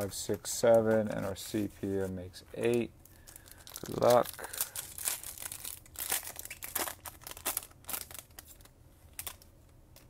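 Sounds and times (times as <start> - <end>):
foil wrapper crinkling and tearing: 2.6 - 9.5.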